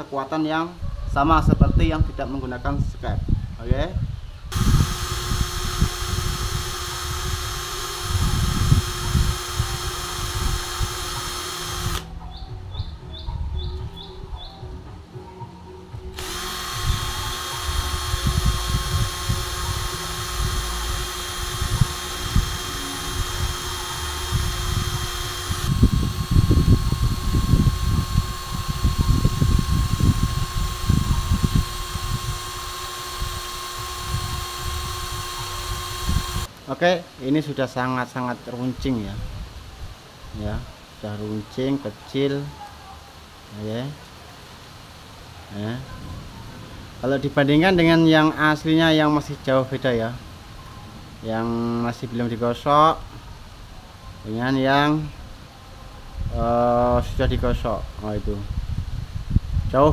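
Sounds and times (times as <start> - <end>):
cordless drill whining: 4.5 - 12.1, 16.1 - 36.5.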